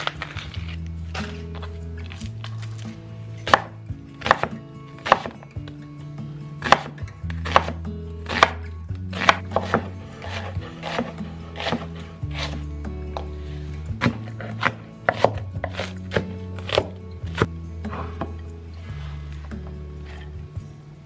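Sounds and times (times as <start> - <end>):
knife chopping onion on wooden board: 3.4 - 5.8, 6.6 - 18.4.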